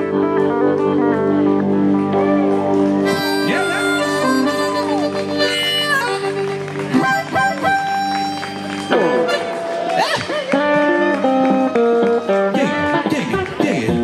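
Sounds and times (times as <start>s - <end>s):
harmonica bending notes: 0.0s - 13.1s
electric guitar chords: 0.0s - 14.0s.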